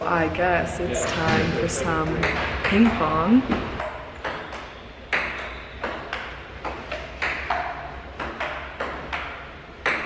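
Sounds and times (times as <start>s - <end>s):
ping pong ball clicking: 2.0s - 10.0s.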